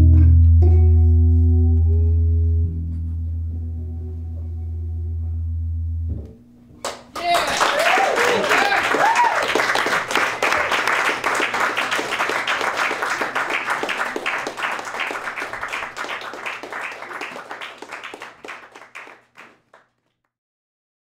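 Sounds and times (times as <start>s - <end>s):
audience applauding: 6.8s - 19.9s.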